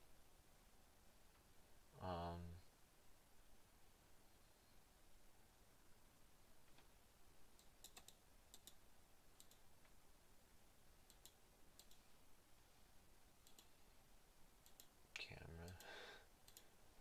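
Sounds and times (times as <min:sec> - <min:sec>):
computer mouse clicks: 0:07.6 - 0:08.8, 0:09.4 - 0:09.6, 0:11.1 - 0:12.0, 0:13.4 - 0:13.8, 0:14.6 - 0:14.9, 0:15.6 - 0:16.7.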